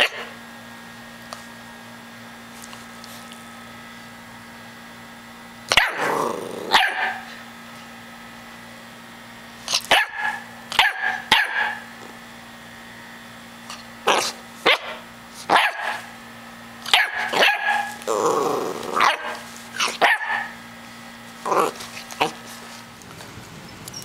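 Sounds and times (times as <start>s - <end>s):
puppy barking: 0.0s - 0.3s, 5.7s - 7.3s, 9.7s - 11.9s, 14.0s - 16.1s, 16.8s - 18.3s, 18.9s - 20.6s.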